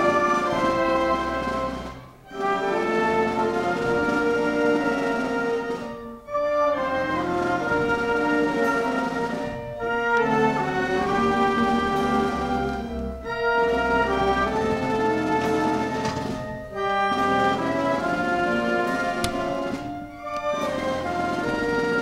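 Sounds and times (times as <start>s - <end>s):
orchestral music with held chords: 0.0s - 22.0s.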